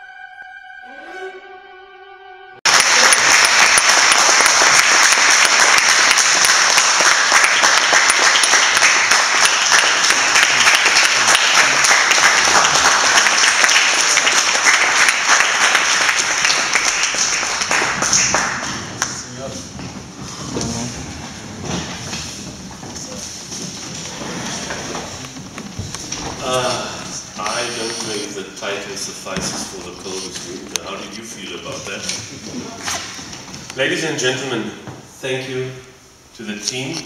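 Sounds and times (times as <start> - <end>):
audience applauding: 2.6 - 28.3.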